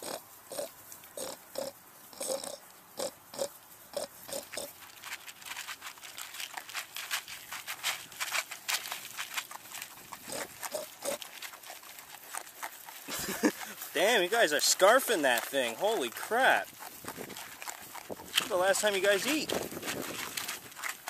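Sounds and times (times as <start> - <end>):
piglets grunting: 0.0 - 4.8, 9.9 - 19.6
pigs crunching dry feed: 0.0 - 21.0.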